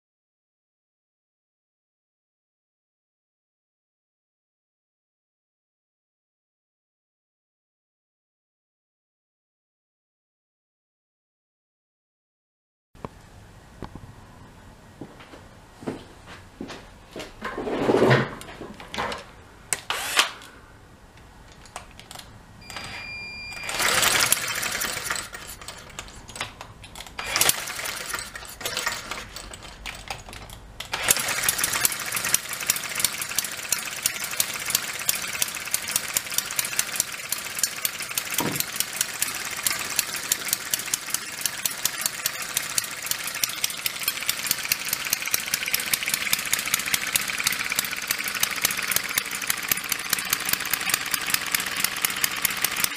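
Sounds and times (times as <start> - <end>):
cordless drill spinning engine: 19.7 - 20.4, 22.7 - 26.2, 27.2 - 30.1, 30.8 - 52.9
model engine running: 23.6 - 26.0, 27.2 - 29.8, 30.9 - 52.9.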